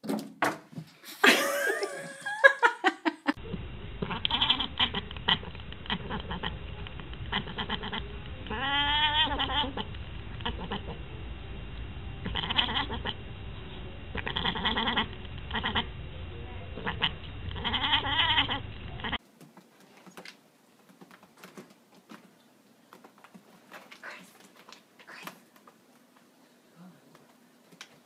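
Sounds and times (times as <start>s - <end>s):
cat yowling: 7.3s - 11.0s, 12.2s - 13.1s, 14.2s - 15.9s, 17.6s - 19.2s.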